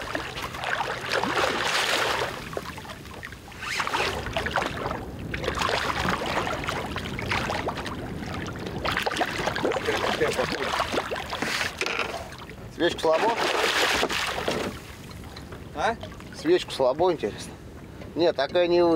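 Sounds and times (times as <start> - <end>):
water splashing and slapping: 0.0 - 18.6
fish thrashing at the surface: 0.1 - 2.8, 13.1 - 14.8.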